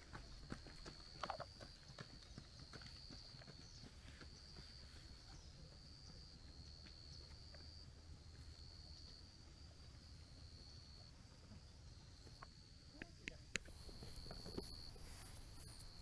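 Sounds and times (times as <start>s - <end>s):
high-pitched insect trill: 13.7s - 16.0s.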